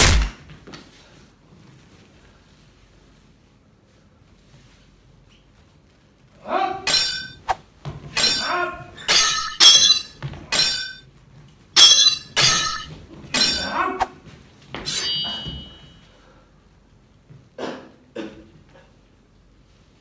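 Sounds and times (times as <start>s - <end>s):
sword clash clangs: 6.9s - 7.6s, 8.2s - 11.0s, 11.8s - 13.8s, 14.8s - 16.0s.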